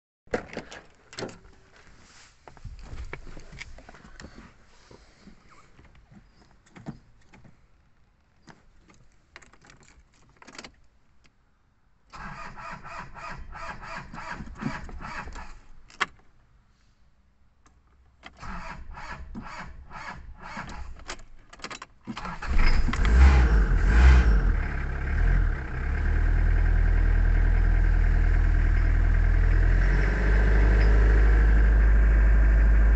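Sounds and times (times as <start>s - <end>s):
engine running and idling: 22.6s - 32.9s.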